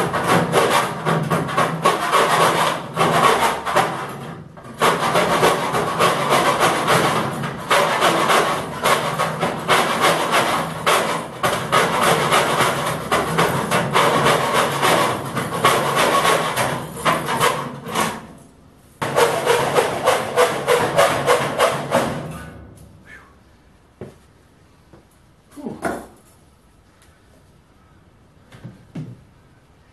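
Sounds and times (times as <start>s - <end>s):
die grinder cutting sheet steel: 4.8s - 18.4s.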